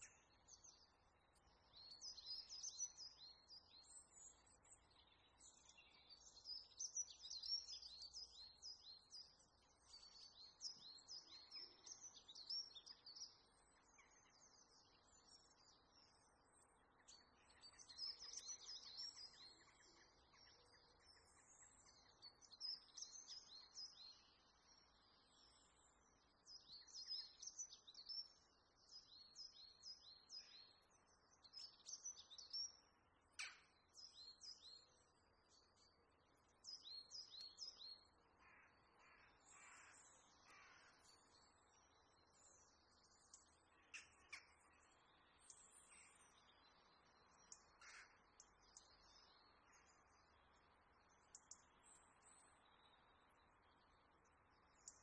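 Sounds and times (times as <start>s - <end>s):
birds chirping: 17.0s - 55.0s
lower bird calls: 47.4s - 50.0s.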